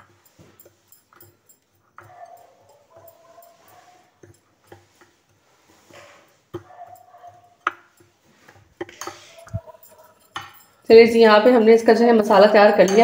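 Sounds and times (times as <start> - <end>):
metal spoon scraping ceramic bowl: 0.0 - 11.0, 12.4 - 13.0.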